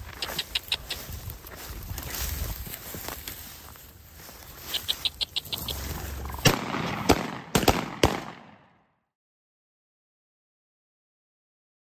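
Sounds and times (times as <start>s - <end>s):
footsteps through dry grass: 0.0s - 8.4s
sharp loud cracks: 6.4s - 8.8s.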